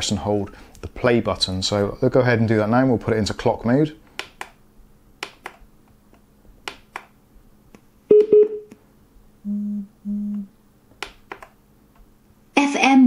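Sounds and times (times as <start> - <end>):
faint steady hum: 0.0 - 13.0
electronic tone: 8.1 - 8.7, 9.5 - 10.5
low beeps: 8.1 - 8.7.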